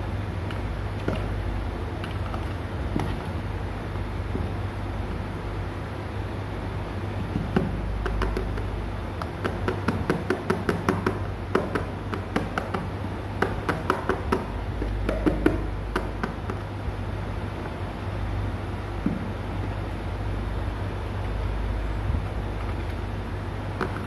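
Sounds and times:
taps on plastic chair: 0:07.3 - 0:16.7.

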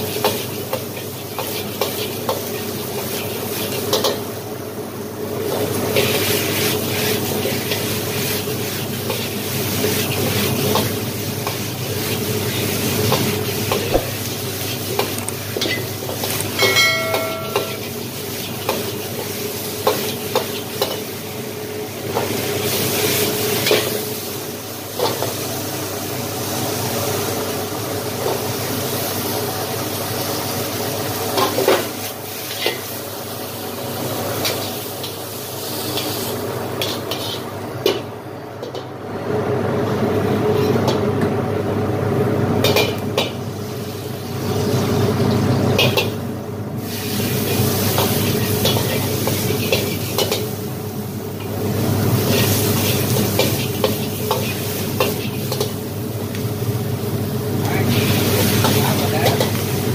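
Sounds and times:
vegetables sizzling in a wok: 0:00.0 - 0:59.9
ringing metal tone: 0:16.6 - 0:17.8.

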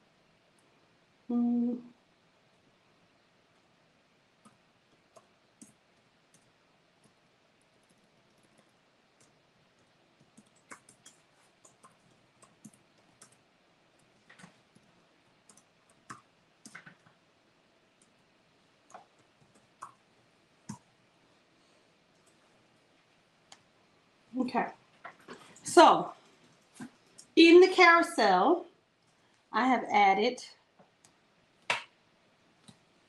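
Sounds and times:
typing on a keyboard: 0:04.4 - 0:17.2, 0:18.9 - 0:20.0.

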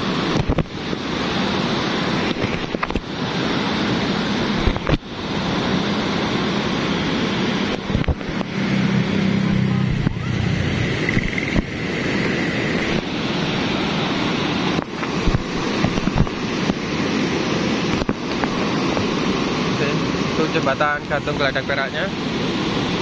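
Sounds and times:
muddy flood water rushing: 0:00.0 - 0:23.0
low hum: 0:04.4 - 0:14.6.

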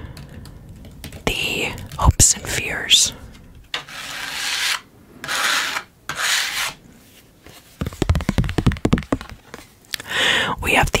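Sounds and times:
small clicks and taps: 0:00.1 - 0:02.0.

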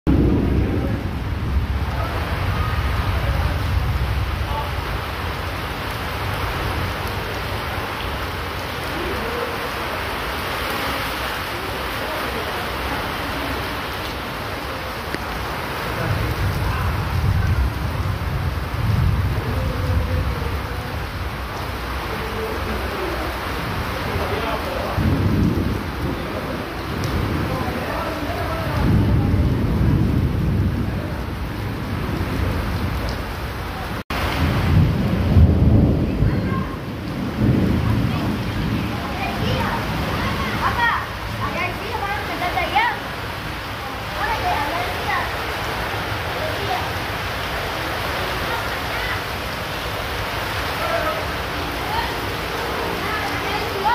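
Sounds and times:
heavy rain on paving: 0:00.0 - 0:53.9
rolling thunder: 0:00.1 - 0:09.4, 0:15.1 - 0:47.5.

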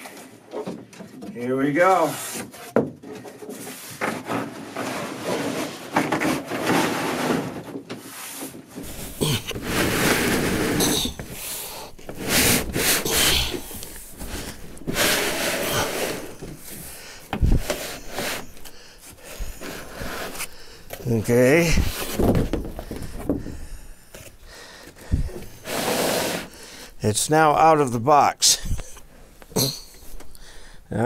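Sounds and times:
cardboard flaps scraping and rubbing: 0:02.0 - 0:23.6, 0:25.0 - 0:26.6.

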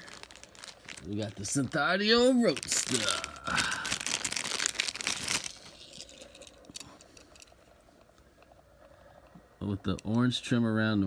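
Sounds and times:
plastic bag crinkling: 0:00.0 - 0:07.7.

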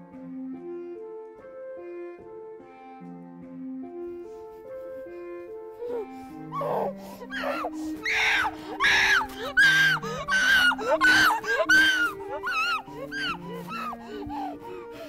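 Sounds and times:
slow sustained background music: 0:00.0 - 0:15.0
person screaming: 0:06.6 - 0:13.9.

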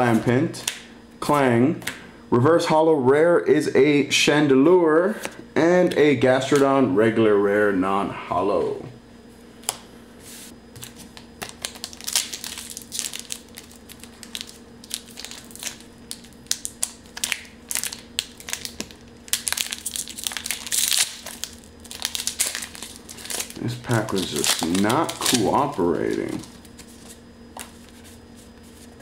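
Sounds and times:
foil wrapper crinkling: 0:10.8 - 0:29.0.

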